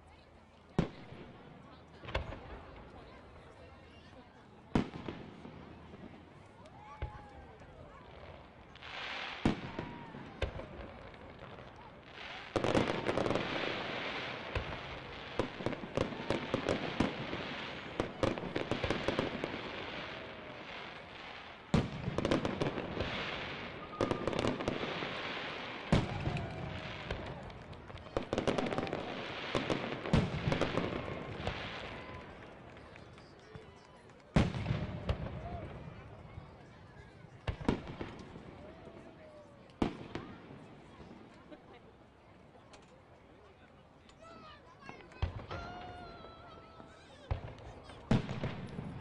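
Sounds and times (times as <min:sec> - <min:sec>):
fireworks crackling and popping: 0:00.5 - 0:49.0
firework booms: 0:08.9 - 0:32.3, 0:34.4 - 0:36.0, 0:47.3 - 0:49.0.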